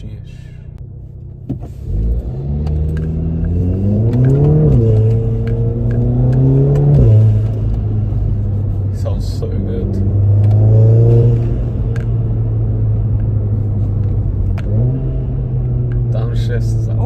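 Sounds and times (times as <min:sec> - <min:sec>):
car engine accelerating: 0:00.8 - 0:17.0.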